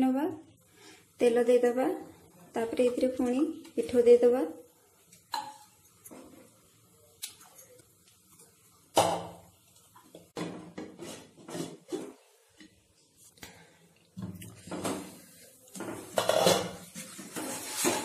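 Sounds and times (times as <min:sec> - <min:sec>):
bowl and spatula clinking and scraping: 0:14.6 - 0:18.0.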